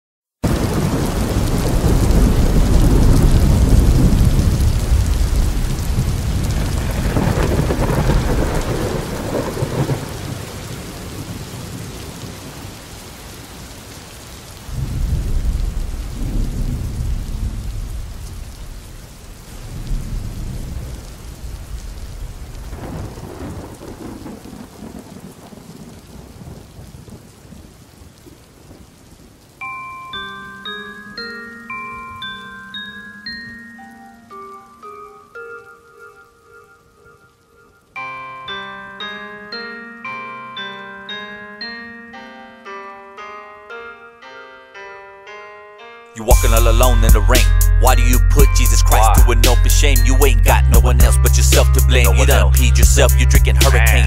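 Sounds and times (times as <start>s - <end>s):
thunder rumbling: 0.4s - 12.8s, 14.6s - 28.8s
steady rain: 0.4s - 41.4s, 46.2s - 54.0s.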